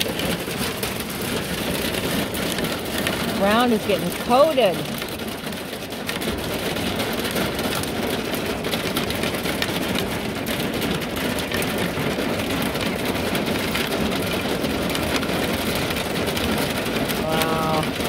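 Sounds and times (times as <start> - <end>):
hail and rain on van roof: 0.0 - 18.0.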